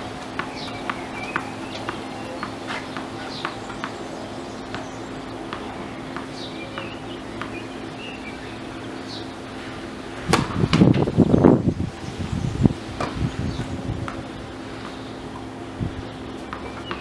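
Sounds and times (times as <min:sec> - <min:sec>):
birds chirping: 0:00.0 - 0:17.0
tennis ball bouncing on court: 0:00.2 - 0:04.0, 0:04.7 - 0:07.7, 0:13.0 - 0:15.5, 0:16.5 - 0:17.0
racket hitting ball: 0:10.3 - 0:11.1.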